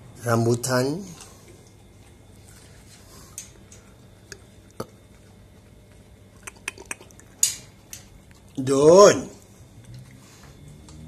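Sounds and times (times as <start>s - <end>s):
monkey chewing corn with clicks: 4.3s - 8.6s.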